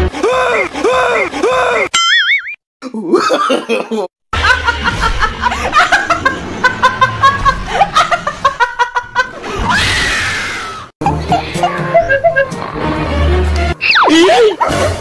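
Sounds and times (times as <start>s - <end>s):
people laughing: 3.0s - 9.6s, 11.0s - 12.8s.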